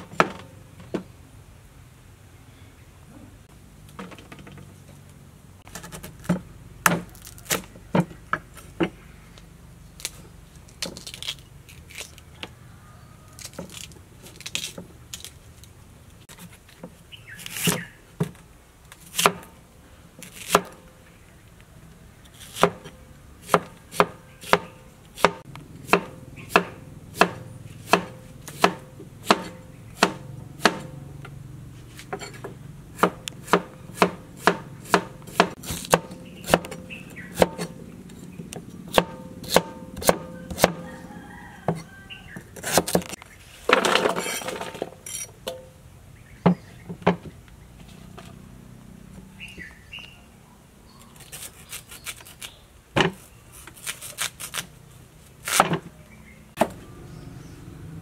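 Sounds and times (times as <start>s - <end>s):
knife chopping on wooden board: 22.5s - 31.0s, 33.0s - 37.7s, 38.9s - 40.8s.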